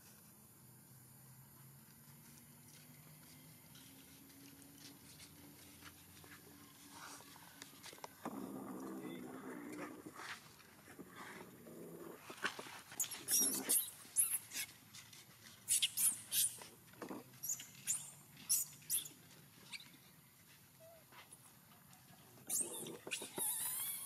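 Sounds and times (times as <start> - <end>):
monkey squealing: 22.5 - 24.0.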